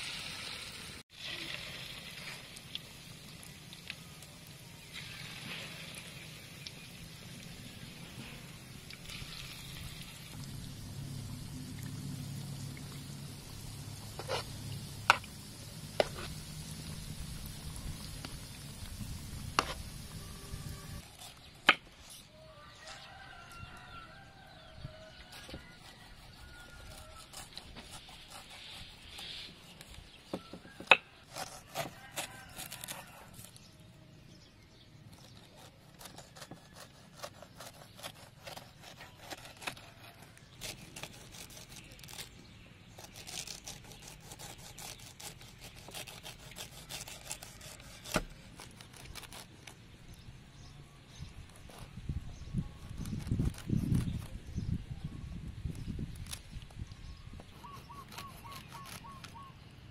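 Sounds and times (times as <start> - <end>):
chicken deep-frying in oil: 0.0 - 21.0, 22.5 - 27.3, 31.9 - 33.4
knife chopping on wooden board: 47.8 - 48.4.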